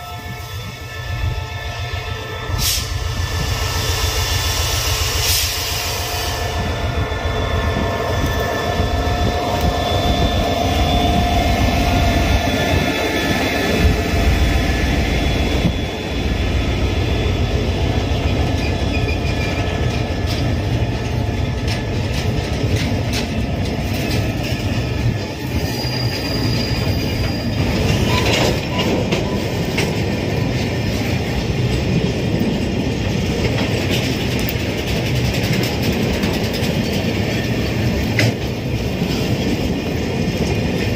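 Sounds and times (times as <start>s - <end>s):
diesel locomotive engine rumbling: 0.0s - 40.9s
wheels squealing: 6.4s - 20.5s, 23.8s - 31.1s
steel wheels clicking over rails: 18.0s - 40.9s.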